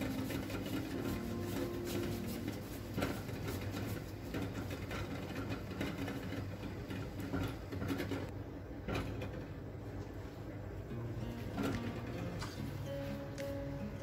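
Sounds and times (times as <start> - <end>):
hands patting dough: 0.0 - 8.3.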